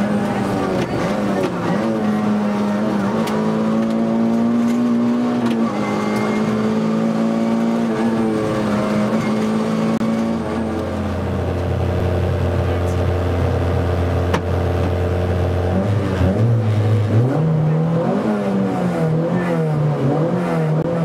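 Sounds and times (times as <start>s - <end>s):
rally car engine at high revs: 0.0s - 21.0s.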